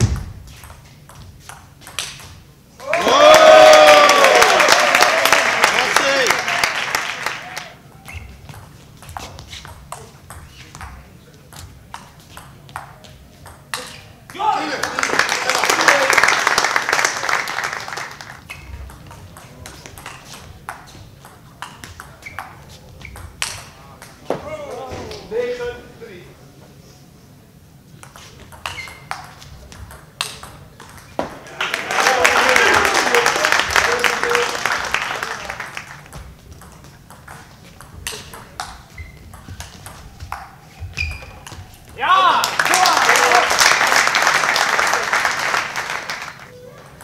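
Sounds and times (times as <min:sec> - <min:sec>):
small crowd applauding: 0:02.8 - 0:07.8, 0:14.4 - 0:18.5, 0:31.4 - 0:36.1, 0:42.1 - 0:46.6.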